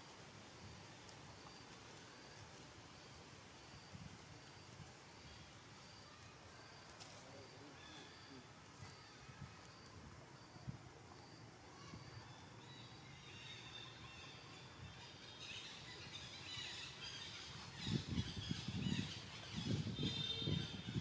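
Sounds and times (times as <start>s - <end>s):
faint high chirping calls: 4.5s - 21.0s.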